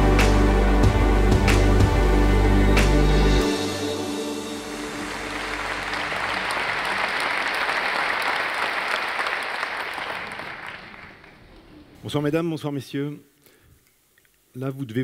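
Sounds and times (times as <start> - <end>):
intro music: 0.0 - 8.0
audience applauding: 3.9 - 11.9.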